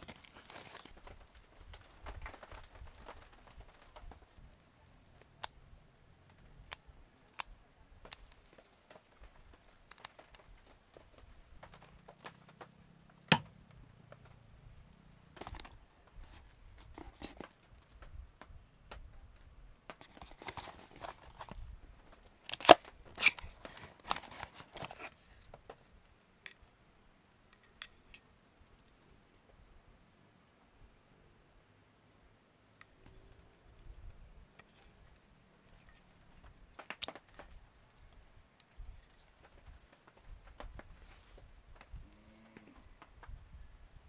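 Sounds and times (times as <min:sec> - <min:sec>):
rustling: 0:00.0 - 0:05.6, 0:19.0 - 0:26.2, 0:33.0 - 0:44.0
small clicks and taps of objects: 0:06.2 - 0:14.4, 0:15.3 - 0:26.8, 0:32.8 - 0:44.0.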